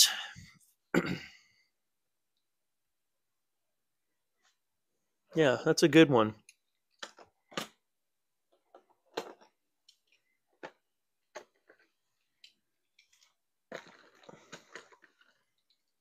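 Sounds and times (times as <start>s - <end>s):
plastic packaging rustling: 13.1s - 15.9s.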